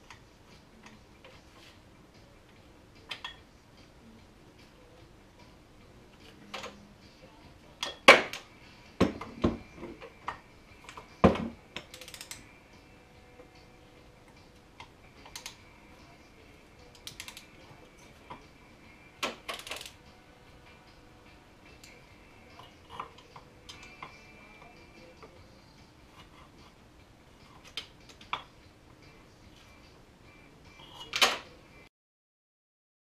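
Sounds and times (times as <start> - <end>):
socket wrench clicking: 11.8 - 12.4, 14.8 - 15.6, 16.9 - 17.5, 19.4 - 20.0.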